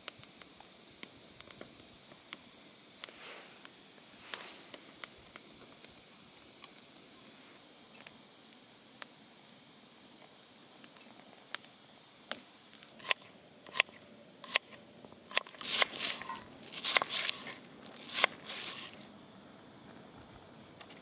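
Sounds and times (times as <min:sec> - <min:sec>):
rustling or scraping: 0:03.1 - 0:03.6, 0:04.2 - 0:04.8, 0:15.5 - 0:19.1.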